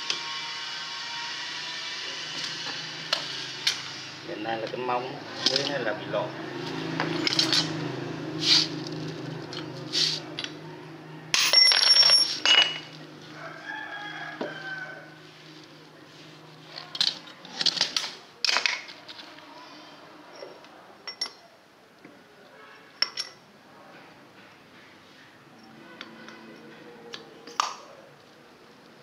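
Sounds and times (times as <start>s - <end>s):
rooster crowing: 10.5s - 11.4s, 13.2s - 15.4s
tools clanking on metal: 11.3s - 13.0s, 23.0s - 23.4s.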